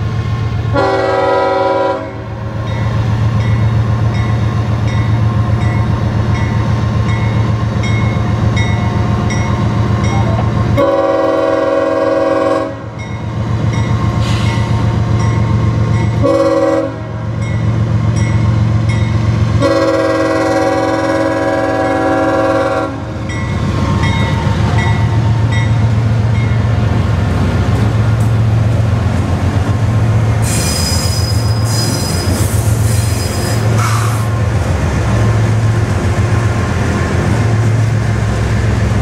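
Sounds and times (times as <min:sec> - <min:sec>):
train horn blasts: 0:00.7 - 0:02.4, 0:10.8 - 0:13.0, 0:16.2 - 0:17.3, 0:19.6 - 0:23.2
crossing bell ringing: 0:02.6 - 0:10.6, 0:12.9 - 0:14.2, 0:15.1 - 0:16.3, 0:17.3 - 0:19.3, 0:23.2 - 0:26.8.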